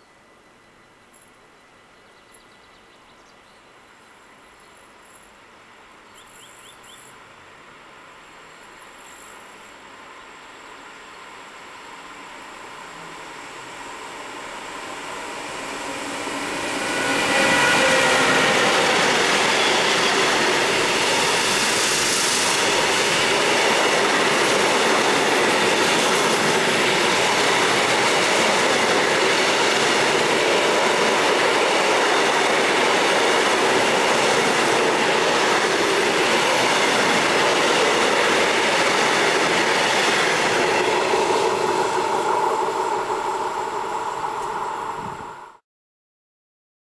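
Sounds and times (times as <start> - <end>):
electric locomotive passing: 8.3 - 45.6
rumble of wheels on rail: 8.6 - 45.6.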